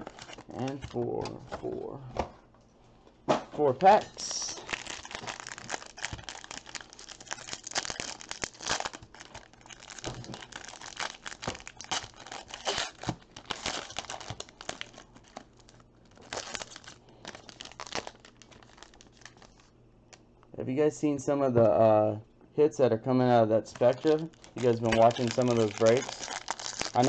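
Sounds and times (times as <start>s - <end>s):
foil wrapper crackling and tearing: 0.0s - 1.0s, 3.8s - 19.8s, 23.7s - 27.0s.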